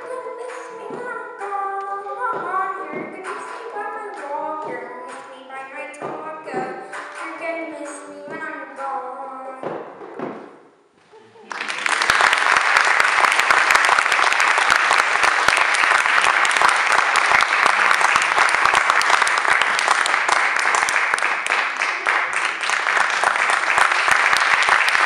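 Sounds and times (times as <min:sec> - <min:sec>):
audience applauding: 0:11.4 - 0:25.0.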